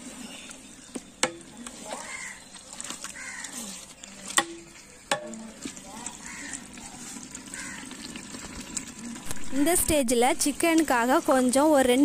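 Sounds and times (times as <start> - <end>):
ladle scraping a pot: 0.0 - 9.7
gravy sizzling: 0.0 - 12.0
ladle knocking on pot: 4.3 - 5.4.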